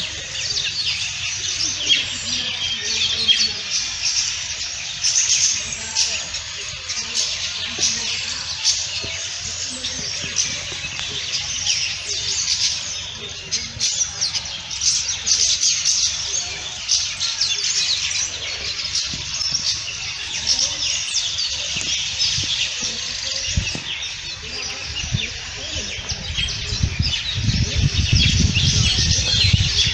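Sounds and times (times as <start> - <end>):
chorus of birds chirping: 0.0 - 29.9.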